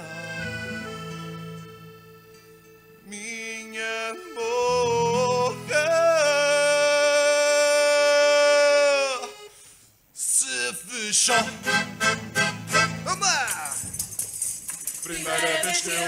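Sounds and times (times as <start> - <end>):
person singing: 0.0 - 1.4, 3.0 - 9.5, 15.1 - 16.0
quiet instrumental backing: 0.0 - 6.5.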